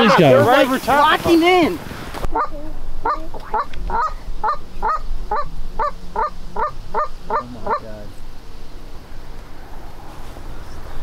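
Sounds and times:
goose honking: 0.0s - 1.4s, 2.3s - 8.1s.

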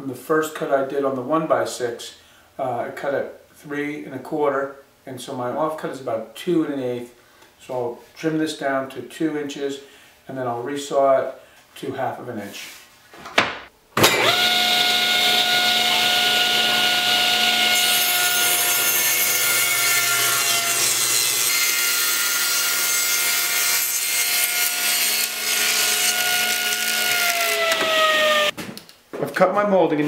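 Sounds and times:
saw blade cutting wood: 14.0s - 28.5s
table saw whine: 14.0s - 28.5s.

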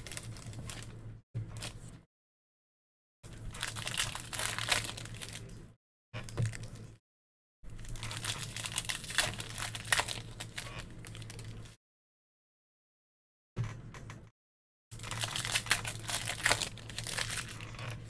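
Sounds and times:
card packs crinkling and tearing: 0.0s - 0.9s, 3.4s - 5.6s, 7.8s - 11.7s, 15.0s - 18.0s.

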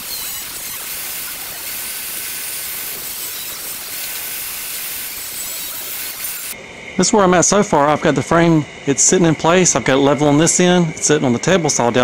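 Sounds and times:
angle grinder cutting steel: 0.0s - 6.6s.

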